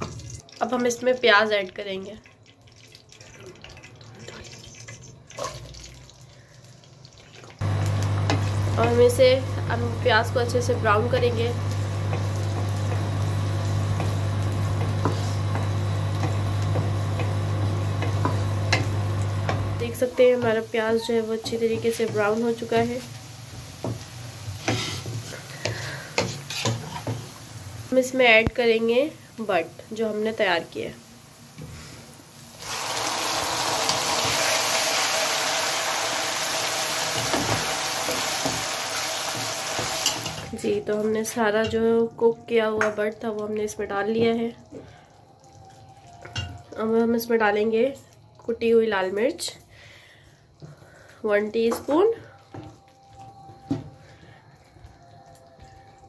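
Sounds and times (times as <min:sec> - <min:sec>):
onions sizzling in oil: 0:07.6 - 0:45.0
wooden spatula scraping pan: 0:24.6 - 0:27.2.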